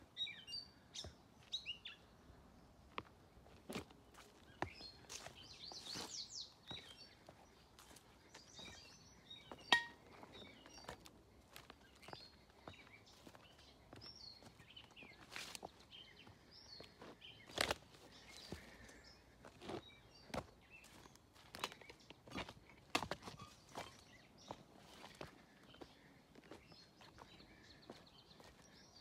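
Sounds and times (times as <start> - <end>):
footsteps crunching on ballast: 2.9 - 28.8
faint bird chirps: 23.2 - 29.0.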